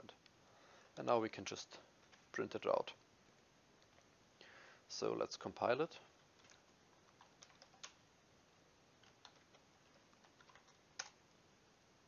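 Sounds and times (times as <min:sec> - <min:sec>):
computer keyboard typing: 0:06.2 - 0:08.0, 0:09.0 - 0:11.2.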